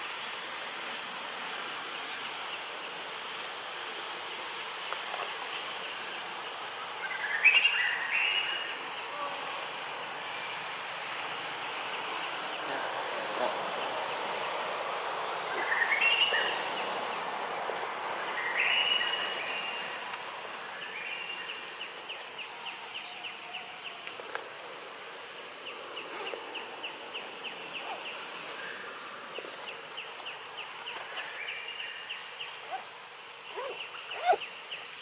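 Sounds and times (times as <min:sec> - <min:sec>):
high insect drone: 0:00.0 - 0:35.0
rising whistled calls: 0:18.3 - 0:20.0.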